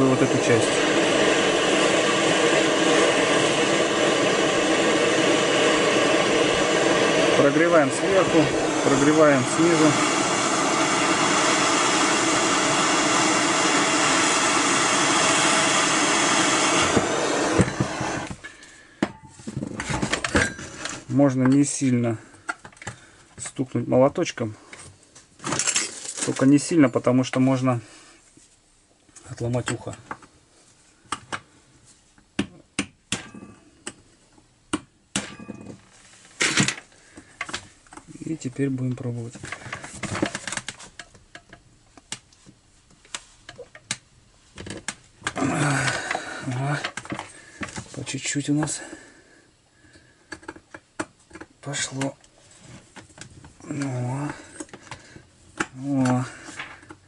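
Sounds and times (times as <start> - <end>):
torch flame hissing: 0.0 - 18.4, 45.3 - 47.6.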